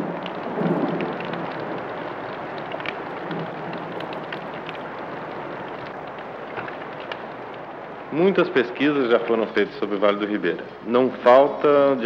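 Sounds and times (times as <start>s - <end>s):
water dripping off tiles: 0.0s - 8.2s
thunder rumble: 0.0s - 10.2s
rain on clay roof tiles: 0.0s - 12.0s.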